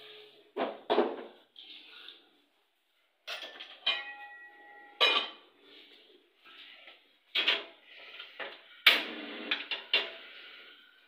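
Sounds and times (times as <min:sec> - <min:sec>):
metal cooking pots clanking: 0:03.3 - 0:05.5.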